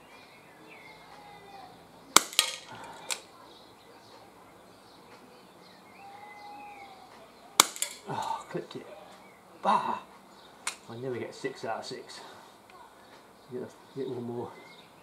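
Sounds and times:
faint birdsong: 0.0s - 15.0s
pellet hitting tin can: 2.2s - 2.7s, 7.6s - 8.1s
can clattering over: 2.2s - 2.8s, 7.6s - 8.1s
air revolver shot: 2.2s - 3.2s, 7.6s - 8.1s.

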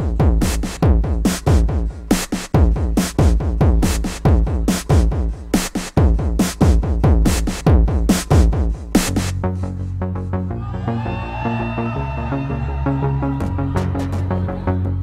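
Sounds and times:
electronic music with drum machine: 0.0s - 9.9s.

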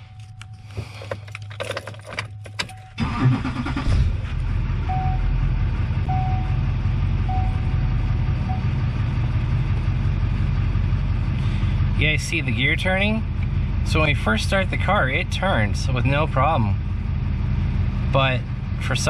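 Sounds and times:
diesel engine cranking and idling: 0.0s - 19.0s
keys rattling: 0.2s - 3.0s
steady warning tone: 7.2s - 8.8s.

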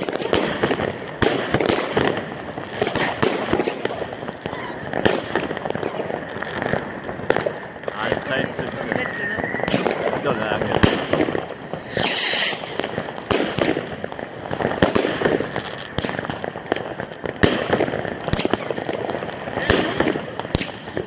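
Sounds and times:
firework bangs: 0.0s - 21.0s
firework hiss: 4.9s - 21.0s.

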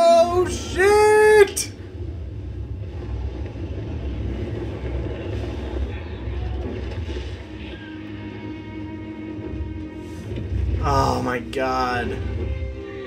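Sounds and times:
low steady rumble: 1.8s - 10.8s.

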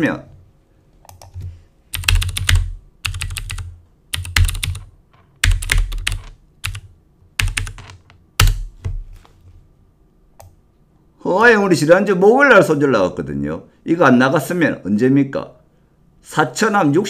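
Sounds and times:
computer keyboard typing: 1.1s - 8.7s.

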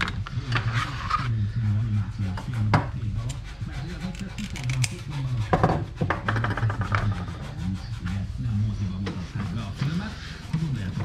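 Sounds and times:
rubbing and handling on workbench: 0.4s - 11.0s
tin snips cutting metal mesh: 4.2s - 5.0s.

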